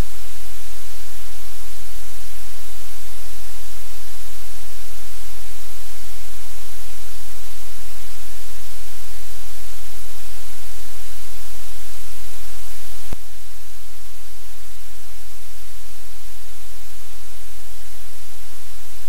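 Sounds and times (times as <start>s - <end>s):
electrical hum with hiss: 0.0s - 19.0s.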